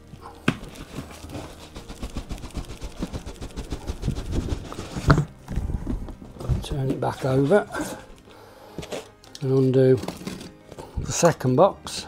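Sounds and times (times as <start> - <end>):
cardboard scraping and crackling: 0.3 - 8.1, 8.8 - 10.6
plastic wrap crackling: 0.6 - 5.4.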